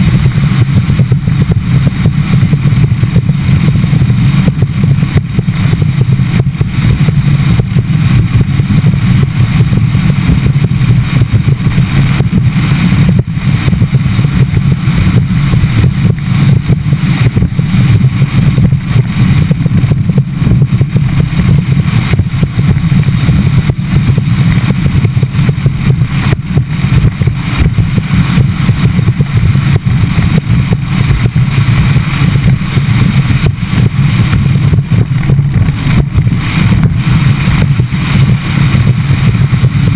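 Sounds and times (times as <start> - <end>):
outboard motor running: 0.0 - 39.9
rushing wind: 0.0 - 39.9
water noise: 0.0 - 39.9.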